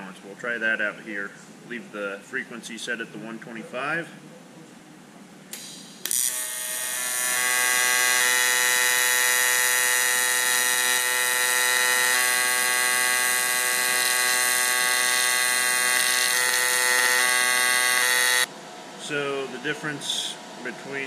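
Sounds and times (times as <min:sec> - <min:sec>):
welding arc buzzing: 0:05.5 - 0:18.5.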